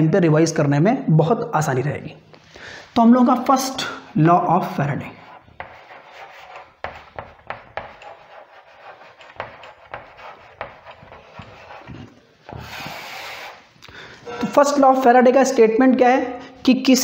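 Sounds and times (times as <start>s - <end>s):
chalk writing on chalkboard: 4.8s - 13.7s.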